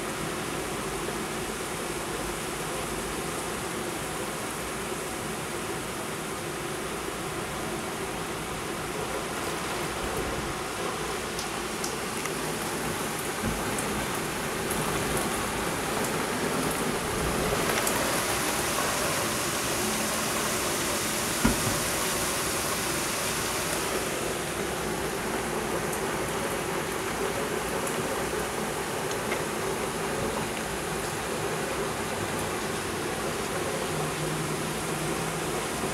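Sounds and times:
torrential rain pouring: 0:00.0 - 0:35.9
short knock: 0:21.4 - 0:21.9.

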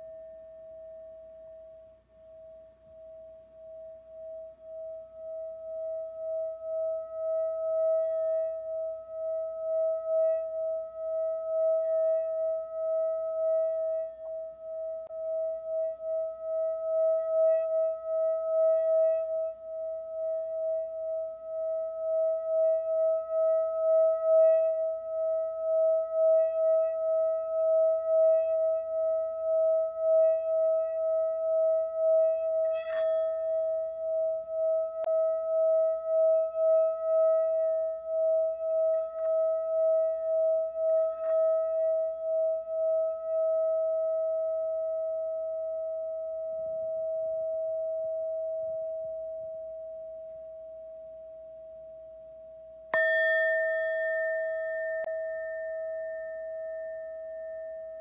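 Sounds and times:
singing bowl ringing: 0:00.0 - 0:58.0.

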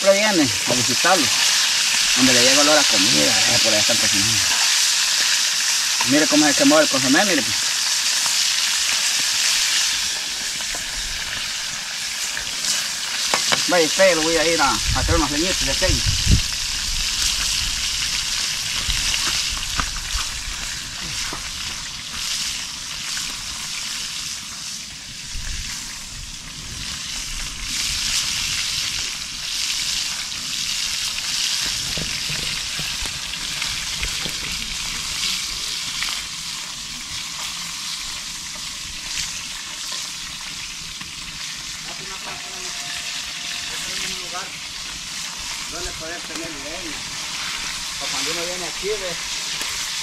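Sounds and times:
meat frying in hot oil: 0:00.0 - 0:50.0
oil popping and crackling: 0:00.0 - 0:50.0.

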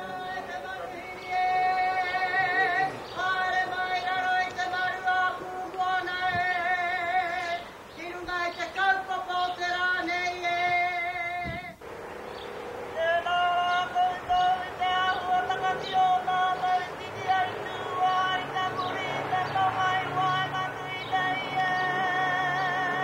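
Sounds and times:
women's ceremonial vocal calls: 0:00.0 - 0:23.0.

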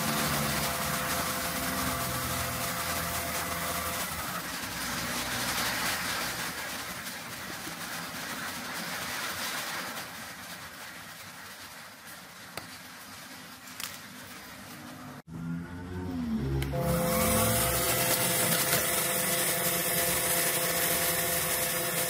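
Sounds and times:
lathe winding down: 0:00.0 - 0:06.1, 0:15.3 - 0:22.0.

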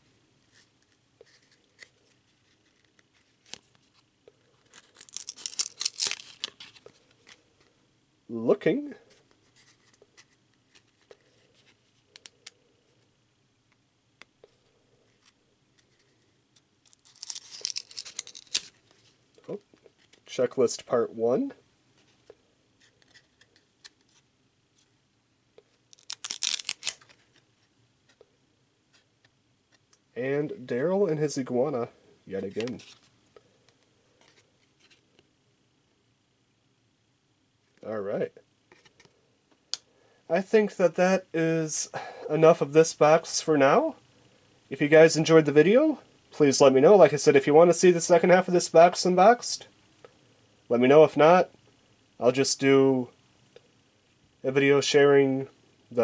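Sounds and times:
trading cards being handled: 0:00.5 - 0:07.7, 0:09.1 - 0:12.6, 0:14.4 - 0:20.9, 0:25.6 - 0:28.3, 0:32.4 - 0:33.1
trading cards sliding together: 0:16.9 - 0:19.0, 0:26.0 - 0:27.4.

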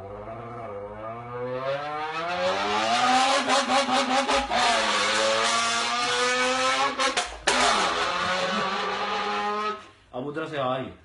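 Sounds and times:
man imitating car engine: 0:06.6 - 0:09.7.

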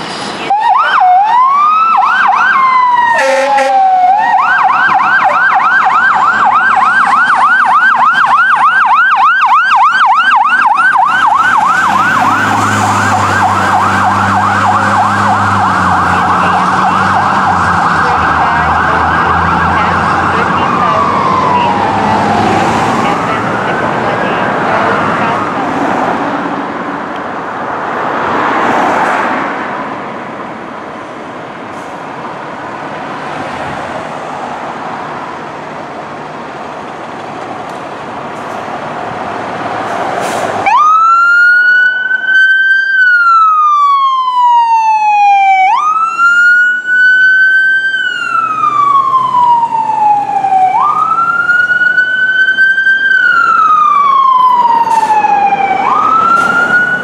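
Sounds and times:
road traffic noise: 0:00.0 - 0:57.0
fire truck siren wailing: 0:00.2 - 0:29.8, 0:37.9 - 0:57.0.

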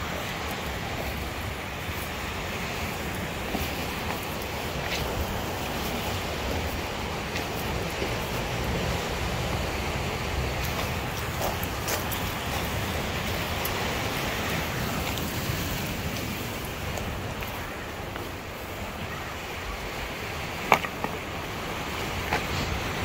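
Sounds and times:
surf: 0:00.0 - 0:23.0
wind: 0:00.0 - 0:23.0
stones clacking together: 0:20.6 - 0:21.2.

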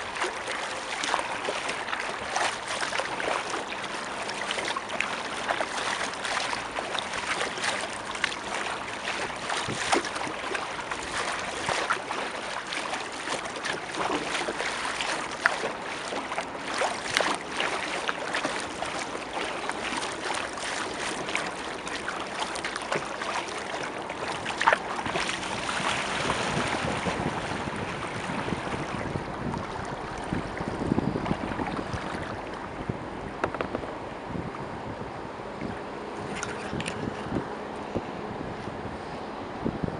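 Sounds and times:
sharp splashes or knocks: 0:00.0 - 0:27.5
water lapping against kayak hull: 0:00.0 - 0:39.9
wind on microphone: 0:00.0 - 0:39.9.

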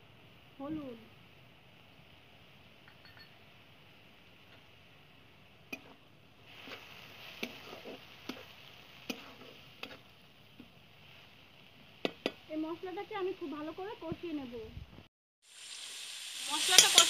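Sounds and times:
faint sizzle: 0:00.0 - 0:17.0
metal spatula scraping a pan: 0:06.5 - 0:10.1, 0:16.6 - 0:17.0.

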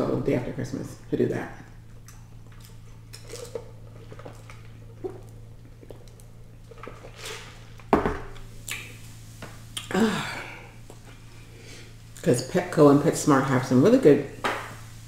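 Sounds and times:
cup set down on table: 0:07.9 - 0:08.3.

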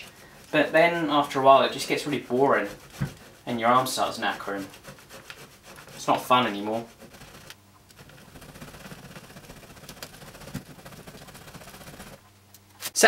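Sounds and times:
cheese grating on metal grater: 0:00.0 - 0:12.2.

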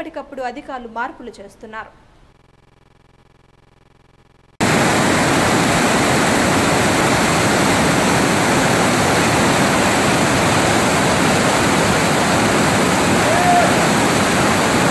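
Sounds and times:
water rushing roar: 0:04.6 - 0:14.9.

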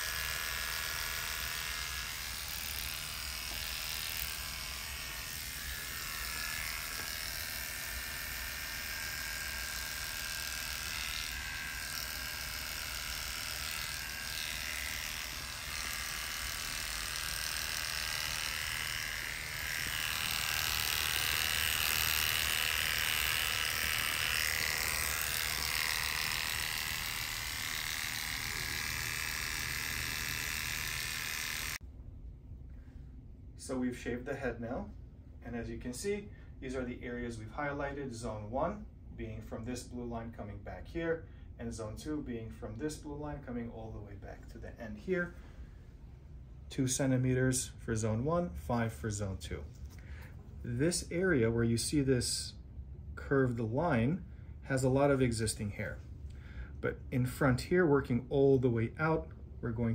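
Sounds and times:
electric hair clippers buzzing: 0:00.0 - 0:31.8.

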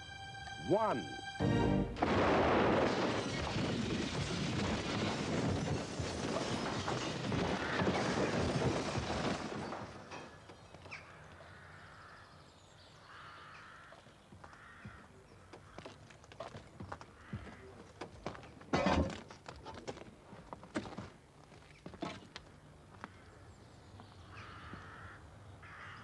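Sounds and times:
rumbling explosion: 0:01.9 - 0:10.4.

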